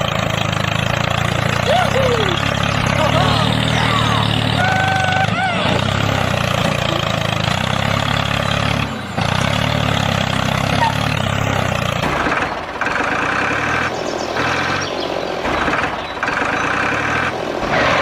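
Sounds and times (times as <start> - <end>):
small tractor engine running: 0.0 - 18.0.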